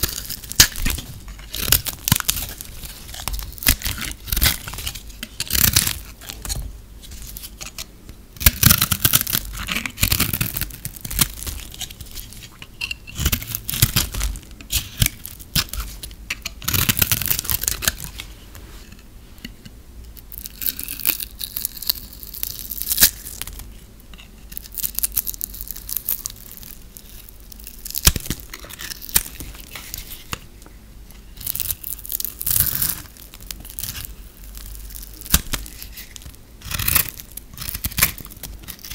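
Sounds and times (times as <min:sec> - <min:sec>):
knife scraping soap: 0:00.0 - 0:06.6, 0:07.2 - 0:18.1, 0:35.3 - 0:38.9.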